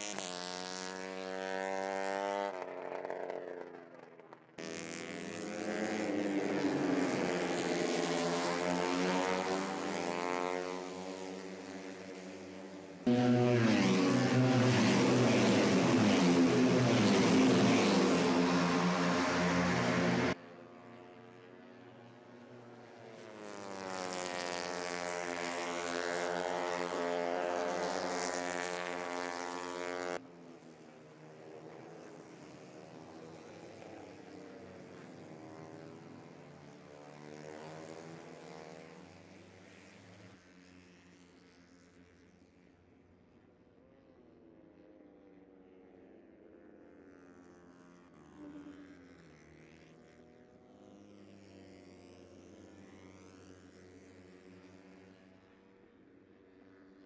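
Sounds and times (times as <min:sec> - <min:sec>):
racing motorcycles passing: 0:00.0 - 0:20.4.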